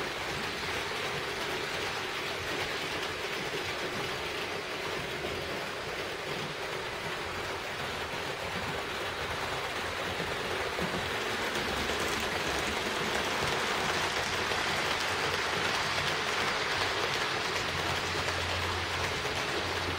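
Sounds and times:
model train running: 0.0 - 19.9.

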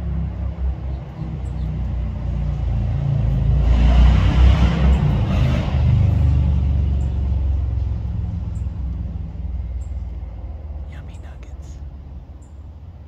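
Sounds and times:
passing vehicle engine rumble: 0.0 - 13.0.

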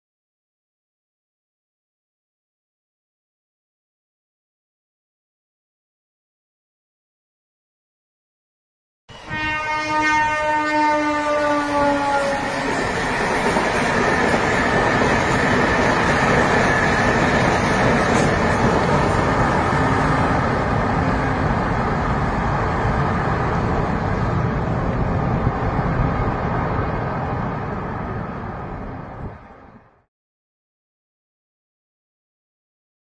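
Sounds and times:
train wheels rumbling on track: 9.1 - 29.9.

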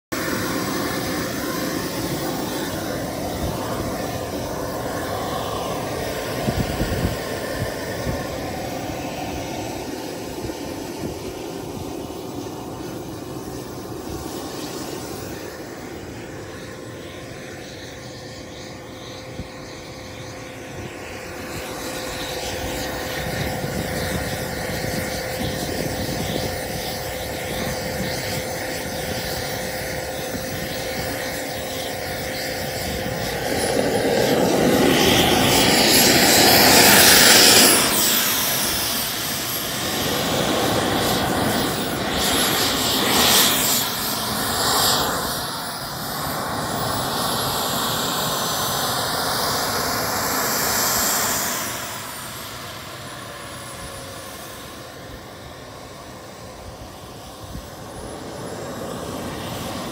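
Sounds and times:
model aircraft engine running: 0.1 - 59.9
wind buffeting microphone: 0.2 - 12.5, 20.7 - 45.5.

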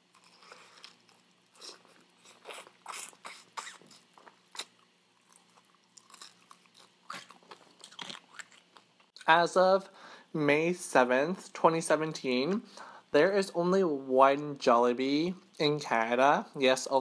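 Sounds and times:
crunching fried chicken: 0.0 - 9.3
chewing: 0.1 - 9.2.

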